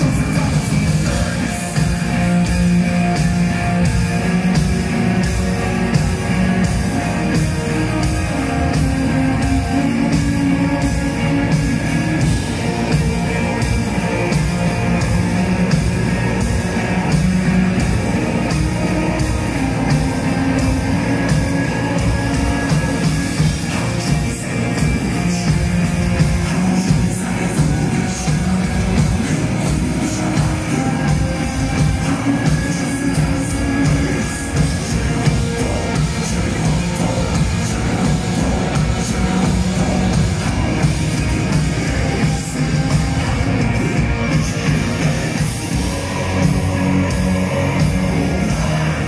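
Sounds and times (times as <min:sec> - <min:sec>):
drums steady beat: 0:00.0 - 0:49.0
folk metal band playing: 0:00.0 - 0:49.0.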